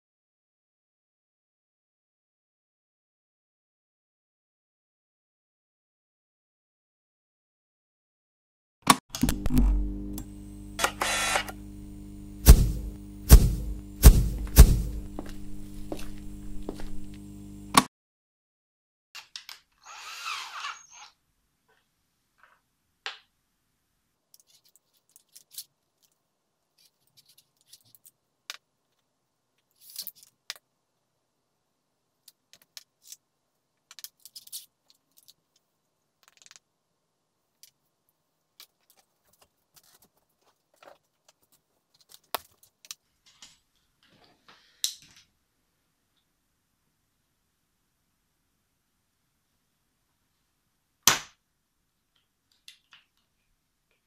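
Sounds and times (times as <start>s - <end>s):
handheld power tool burst: 10.8s - 11.6s, 12.3s - 15.2s.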